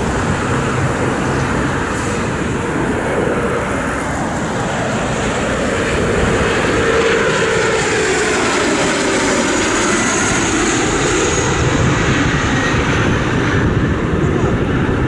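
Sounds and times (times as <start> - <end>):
jet plane flying low past: 0.0 - 15.0.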